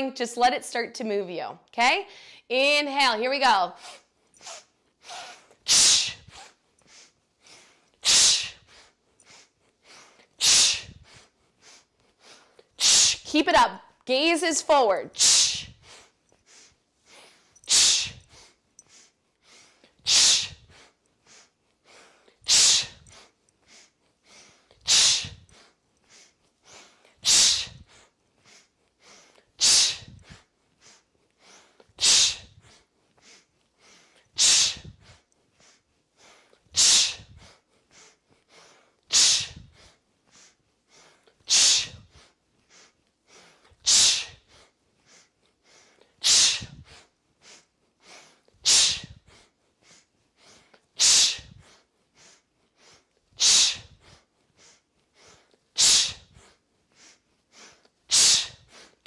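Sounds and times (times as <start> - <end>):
sniffed inhales through nose: 15.2 - 59.0.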